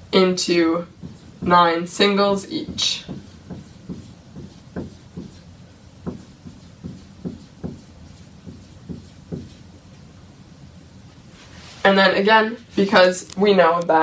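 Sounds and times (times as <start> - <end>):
marker tapping on whiteboard: 1.0 - 9.7.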